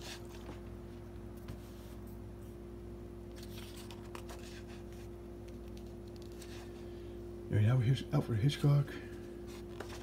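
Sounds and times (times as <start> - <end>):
low electrical hum: 0.0 - 10.0
book pages rustling: 3.3 - 6.9, 9.4 - 10.0.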